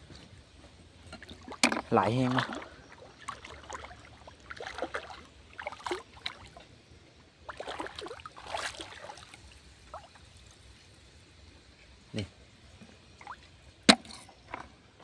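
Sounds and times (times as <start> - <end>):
wading through pond water: 0.4 - 15.0.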